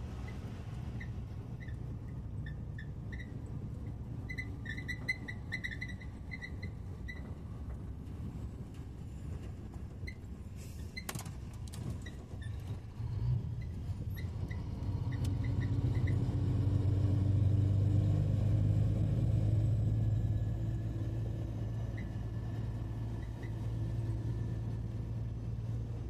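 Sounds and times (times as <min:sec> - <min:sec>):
truck diesel engine drone: 0:12.6 - 0:26.0.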